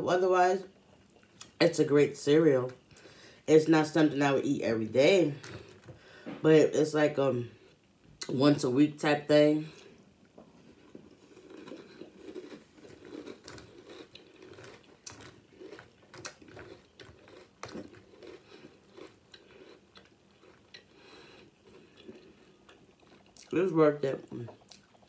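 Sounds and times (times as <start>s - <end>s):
person chewing crunchy cereal: 9.7s - 23.6s, 24.3s - 25.0s.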